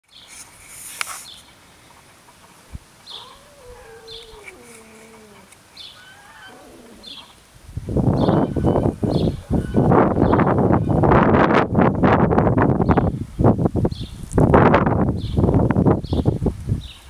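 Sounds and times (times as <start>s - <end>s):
small birds chirping: 0.1s - 0.4s, 1.2s - 7.5s, 8.1s - 11.0s, 13.9s - 14.2s, 15.2s - 17.0s.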